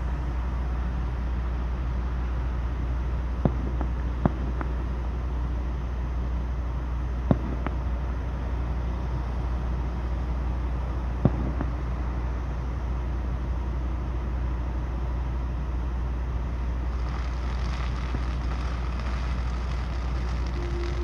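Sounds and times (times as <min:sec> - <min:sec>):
road hiss: 0:00.0 - 0:06.9, 0:16.5 - 0:21.0
vehicle engine idling: 0:00.0 - 0:21.0
sharp pop: 0:07.3 - 0:07.8.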